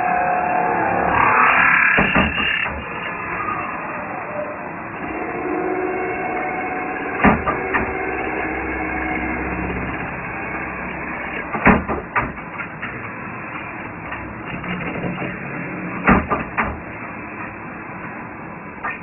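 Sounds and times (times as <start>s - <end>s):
metal spinning machine running: 0.0s - 18.8s
sharp knocks: 2.0s - 2.8s, 7.2s - 8.2s, 11.4s - 13.0s, 16.0s - 16.9s.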